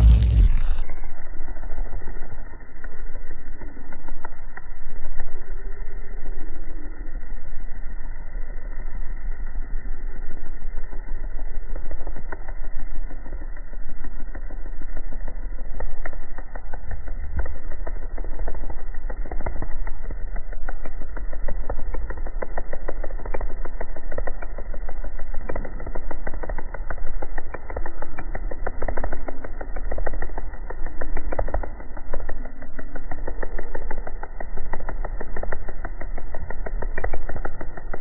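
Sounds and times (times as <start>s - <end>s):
faint ticks: 1.8s - 7.6s, 10.4s - 38.0s.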